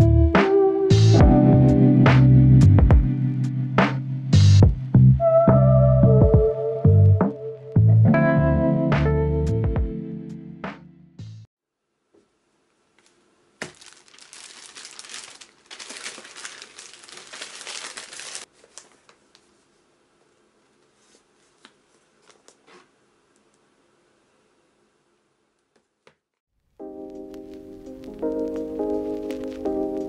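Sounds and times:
plastic bag crinkling: 13.6 - 19.5.

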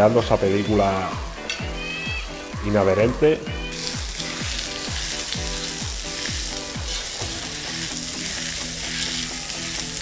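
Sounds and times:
onions sizzling on a griddle: 0.0 - 2.7, 3.7 - 10.0.

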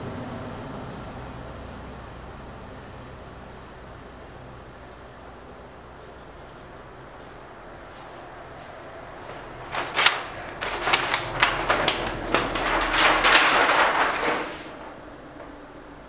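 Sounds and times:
paper crackling and rustling: 7.2 - 15.8.

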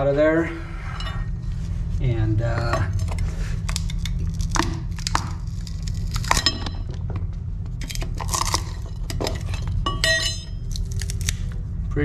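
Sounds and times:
steady low hum: 0.0 - 12.0
wood and fiberglass cracking: 3.6 - 9.8, 10.6 - 11.5.

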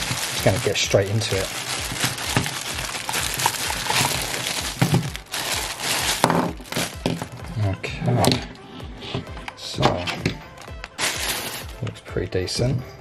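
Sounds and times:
plastic bag crinkling: 0.0 - 7.4, 10.6 - 11.8.

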